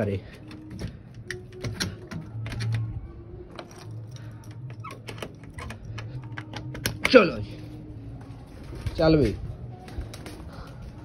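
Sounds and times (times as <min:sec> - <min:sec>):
wire cage door clicking and rattling: 0:00.4 - 0:07.4.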